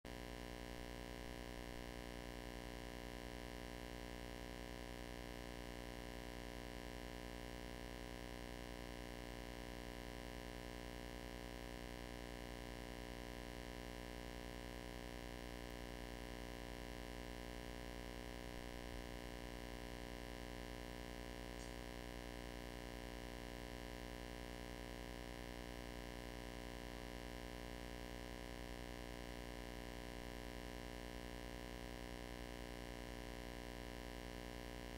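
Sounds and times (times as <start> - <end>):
electrical hum and hiss: 17.7 - 33.4.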